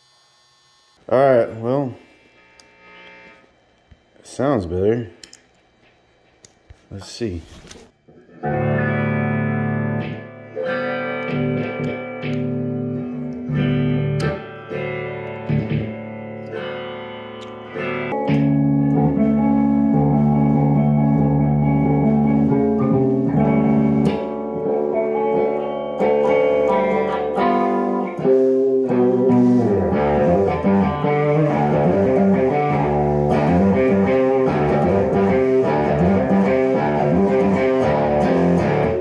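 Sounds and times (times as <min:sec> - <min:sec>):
electric guitar playing: 0:08.1 - 0:39.0.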